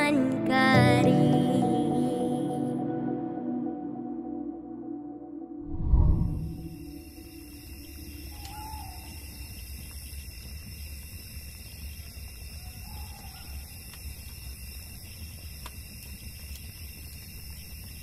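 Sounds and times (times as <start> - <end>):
wavering bird call: 8.3 - 9.1.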